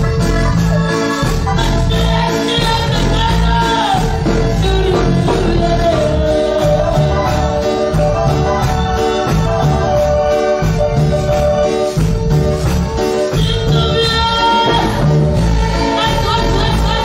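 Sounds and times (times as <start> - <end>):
instrumental accompaniment with bass: 0.0 - 17.0
woman singing into a microphone: 0.2 - 7.6, 13.4 - 15.1, 15.7 - 17.0.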